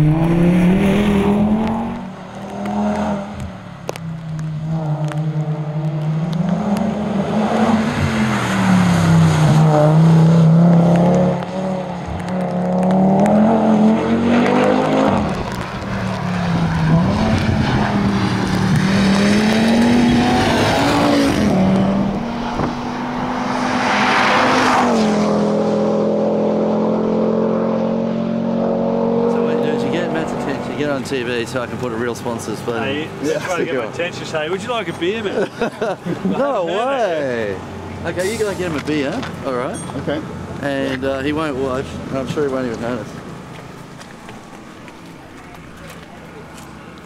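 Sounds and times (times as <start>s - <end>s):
rally car engine revving: 0.0s - 36.5s.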